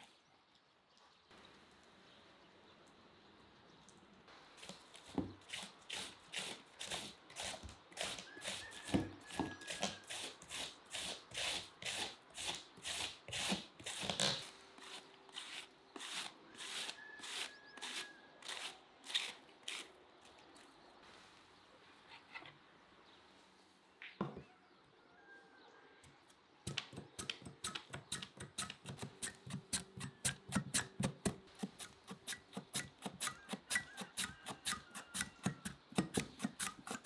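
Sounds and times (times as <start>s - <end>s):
knife slicing cabbage on a board: 4.6s - 19.9s, 26.7s - 37.0s.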